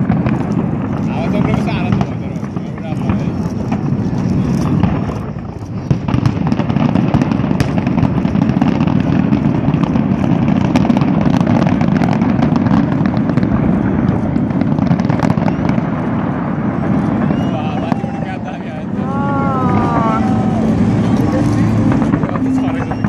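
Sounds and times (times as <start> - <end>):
fireworks bangs and crackles: 0.0 - 23.0.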